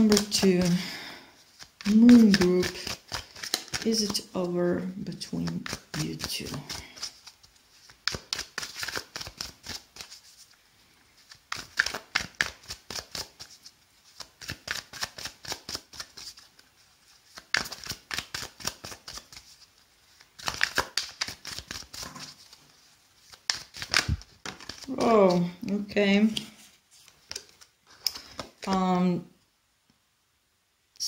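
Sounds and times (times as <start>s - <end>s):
cards being shuffled: 0.0s - 10.6s, 11.2s - 29.0s.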